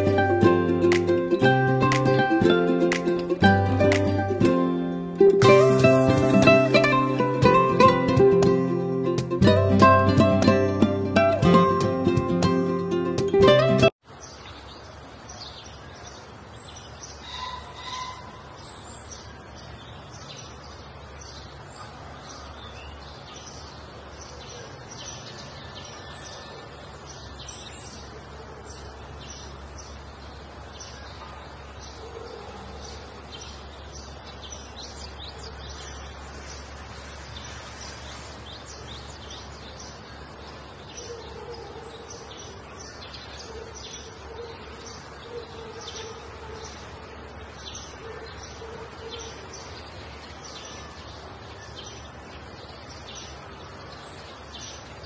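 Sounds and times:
low outdoor background noise: 14.0 - 55.0
birds chirping and calling: 14.2 - 55.0.

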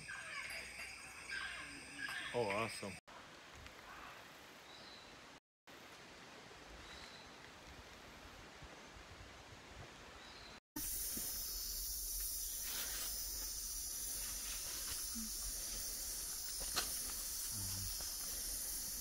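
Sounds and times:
insect chorus hissing: 10.8 - 19.0.

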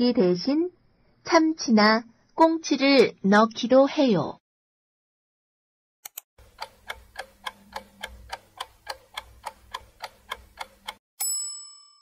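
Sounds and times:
quick clicks: 6.0 - 11.0
clock ticking: 6.1 - 11.0.

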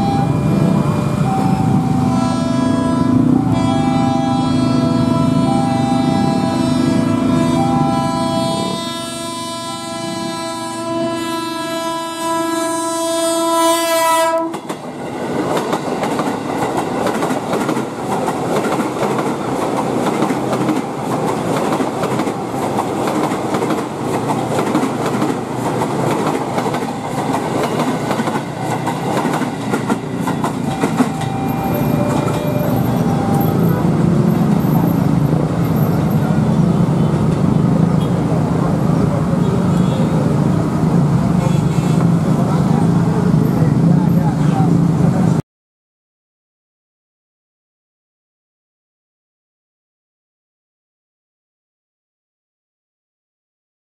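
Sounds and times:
train horn blast: 0.0 - 14.7, 30.6 - 33.8
train wheels rumbling on rails: 14.2 - 45.4.

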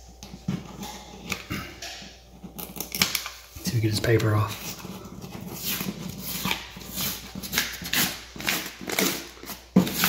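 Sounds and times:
drywall paper ripping: 3.8 - 10.0.

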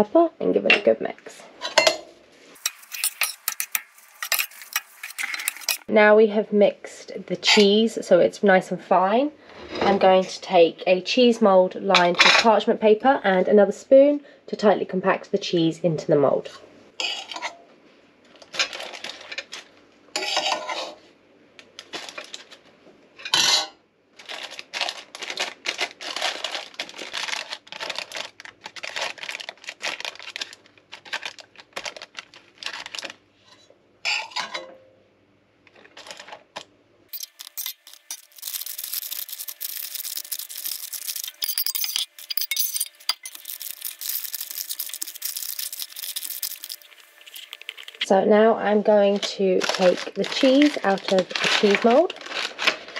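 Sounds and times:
metal spoon scraping a pan: 2.6 - 5.9, 20.2 - 21.0, 37.1 - 48.0.

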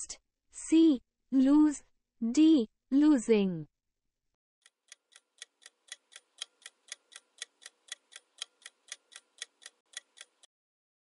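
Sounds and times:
clock ticking: 4.6 - 10.5.

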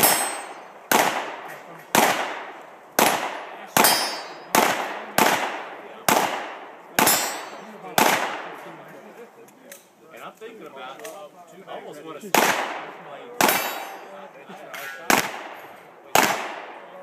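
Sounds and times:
pistol shots with echo: 0.0 - 8.6, 12.3 - 14.2, 15.1 - 17.0.

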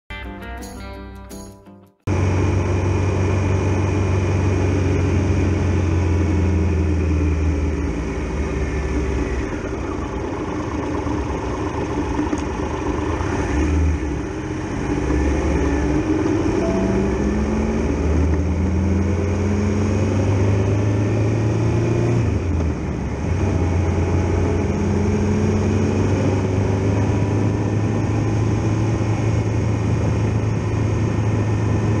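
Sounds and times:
motorcycle engine running: 2.1 - 21.4.

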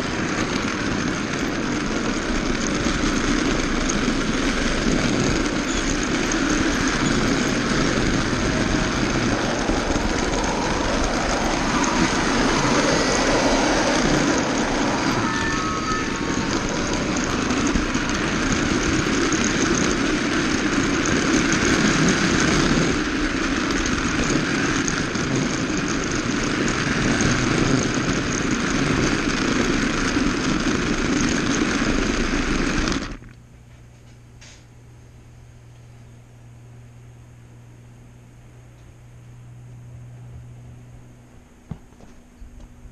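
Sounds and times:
toy car motor whirring rattle: 0.0 - 33.4.

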